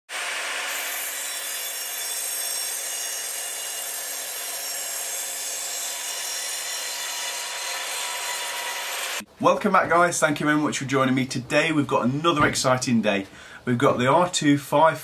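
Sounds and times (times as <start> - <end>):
saw blade cutting timber: 0.1 - 9.2.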